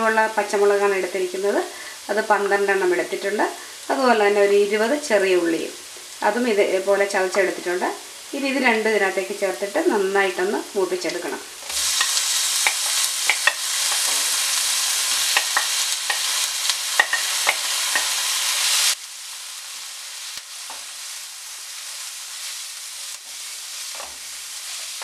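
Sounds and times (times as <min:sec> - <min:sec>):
vegetables sizzling in hot oil: 0:00.0 - 0:25.0
spatula scraping pan: 0:11.7 - 0:18.4.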